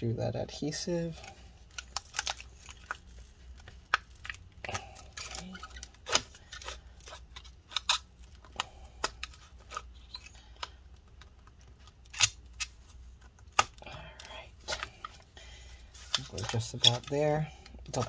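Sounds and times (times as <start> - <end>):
adhesive tearing clicks and crackles: 1.7 - 13.8.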